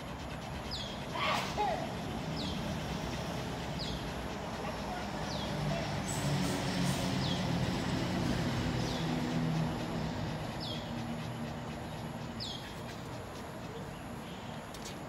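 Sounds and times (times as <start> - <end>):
vehicle engine hum passing: 1.1 - 15.0.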